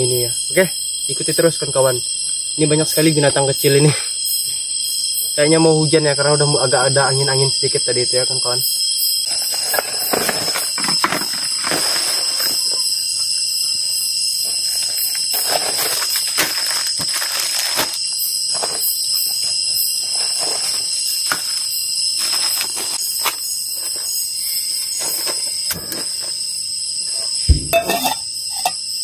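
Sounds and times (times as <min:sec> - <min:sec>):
night insects trilling: 0:00.0 - 0:29.0
plastic bags rustling: 0:09.3 - 0:13.1, 0:14.4 - 0:26.4
camping gear knocking: 0:27.5 - 0:28.8.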